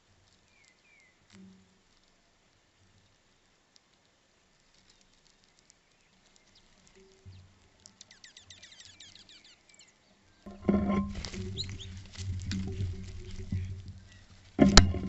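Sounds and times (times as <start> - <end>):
finches chirping: 0.4 - 1.2, 4.8 - 14.4.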